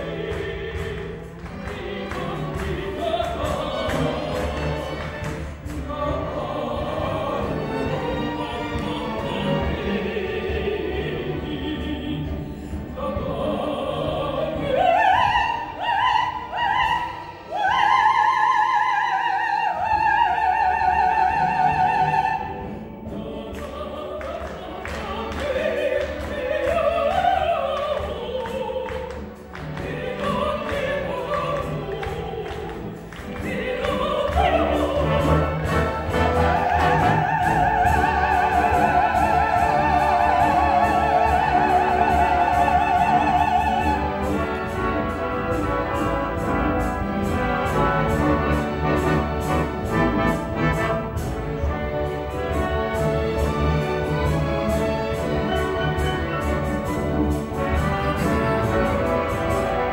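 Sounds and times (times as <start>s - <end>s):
theatre orchestra: 0.0s - 59.9s
woman singing with vibrato: 5.7s - 44.6s.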